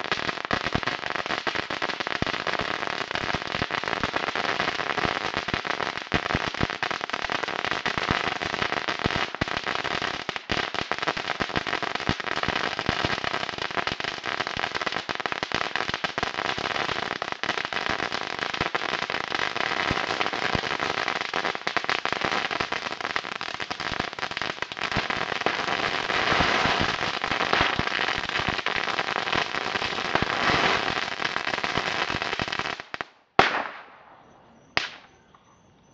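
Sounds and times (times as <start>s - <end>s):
firecrackers popping: 0.0s - 34.2s, 34.8s - 35.2s.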